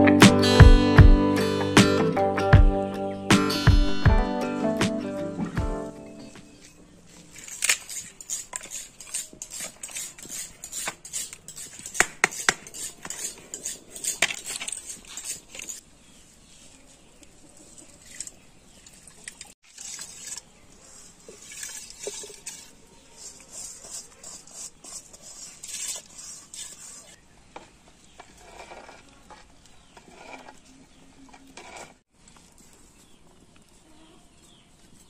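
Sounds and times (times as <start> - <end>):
metal scraping on bowl: 7.1 - 15.8, 19.4 - 32.0.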